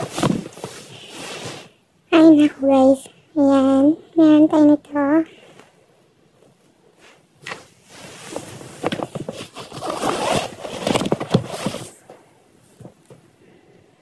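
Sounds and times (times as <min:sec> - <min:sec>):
items rummaged in a handbag: 0:08.2 - 0:12.0.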